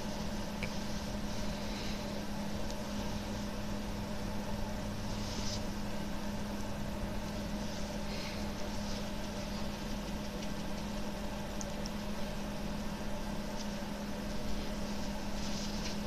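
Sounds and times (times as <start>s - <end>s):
machine hum: 0.0s - 16.0s
faint rustles: 13.5s - 16.0s.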